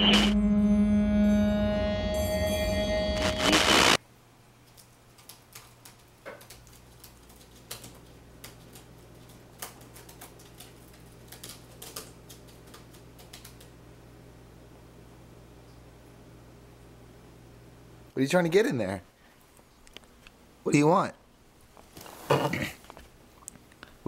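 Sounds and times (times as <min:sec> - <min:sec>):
low steady hum: 0:00.0 - 0:18.2.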